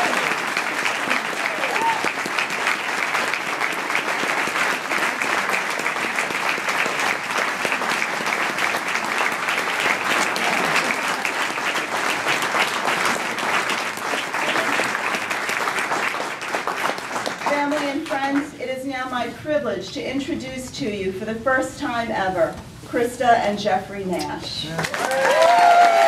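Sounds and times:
people applauding: 0:00.0 - 0:18.5, 0:24.8 - 0:26.0.

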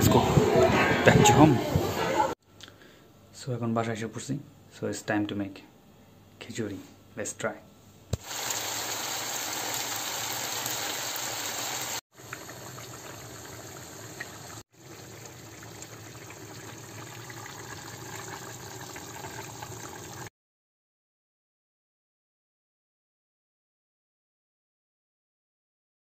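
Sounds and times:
food hissing in a pan: 0:08.2 - 0:12.4.

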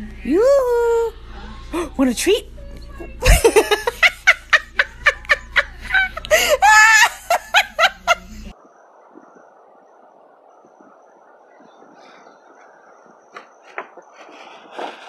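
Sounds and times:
person laughing: 0:03.2 - 0:08.5.

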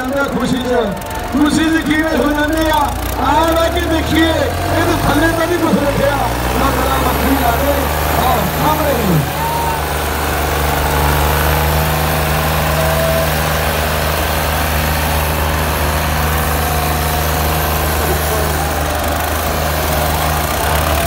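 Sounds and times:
tractor diesel engines straining: 0:00.0 - 0:21.0.

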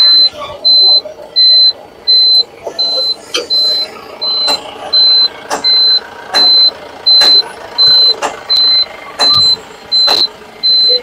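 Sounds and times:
truck warning buzzer beeping: 0:00.0 - 0:11.0
sharp clicks: 0:04.4 - 0:04.7, 0:05.5 - 0:10.4.

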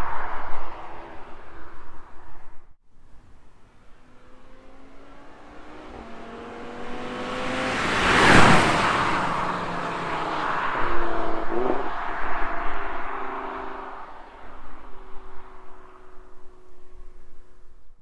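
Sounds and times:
sports car accelerating past: 0:03.4 - 0:17.2.

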